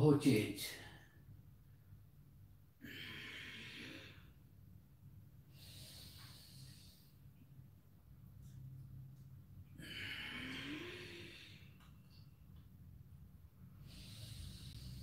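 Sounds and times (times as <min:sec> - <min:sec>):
man breathing deliberately: 0:02.7 - 0:04.6, 0:05.4 - 0:07.4, 0:09.7 - 0:12.2, 0:13.7 - 0:15.0.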